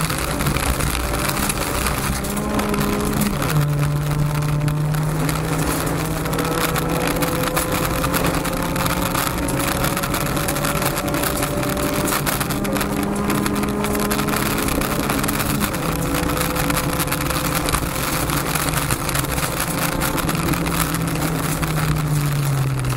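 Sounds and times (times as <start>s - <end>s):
car engine running hard: 0.0s - 22.9s
stones clicking: 0.0s - 22.9s
tyres on gravel: 0.0s - 22.9s.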